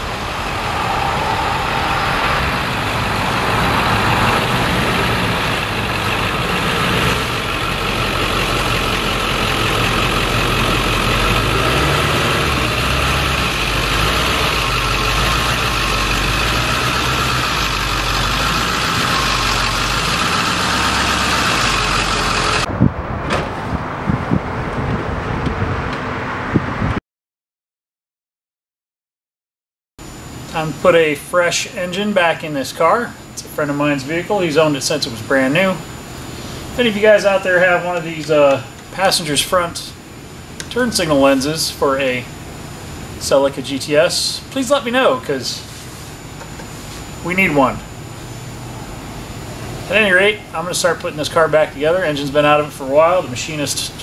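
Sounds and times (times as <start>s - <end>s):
car engine running at low revs: 0.0s - 27.0s.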